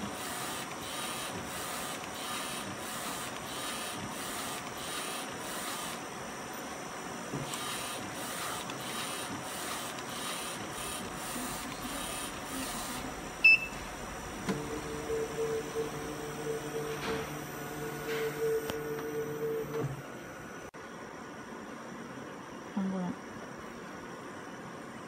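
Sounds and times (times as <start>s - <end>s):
printer carriage sweeping: 0.0s - 6.2s, 7.3s - 20.2s.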